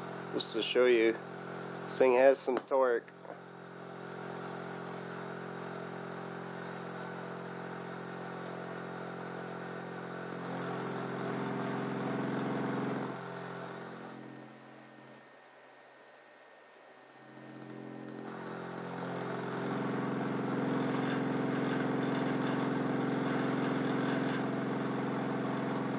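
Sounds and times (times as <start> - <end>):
small gear motor running: 10.0 - 15.3, 17.2 - 25.9.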